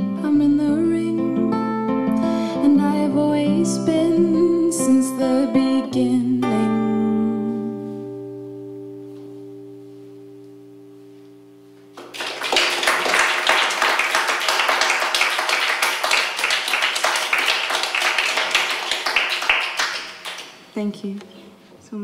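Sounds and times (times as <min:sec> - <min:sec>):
audience applause: 0:12.0 - 0:20.7.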